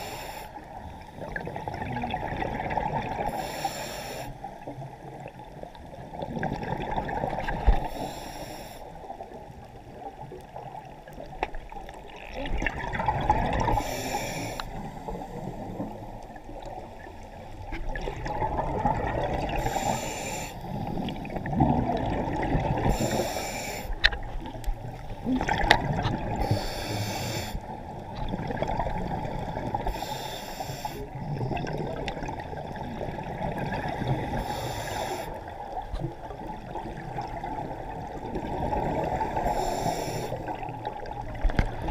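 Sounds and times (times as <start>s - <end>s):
regulator inhale hiss: 0.0s - 1.3s, 3.3s - 4.7s, 7.8s - 9.2s, 13.7s - 16.2s, 19.6s - 21.4s, 22.8s - 24.1s, 26.4s - 27.8s, 29.8s - 31.1s, 34.3s - 35.5s, 39.4s - 40.6s
bubbling exhales: 17.8s - 27.6s.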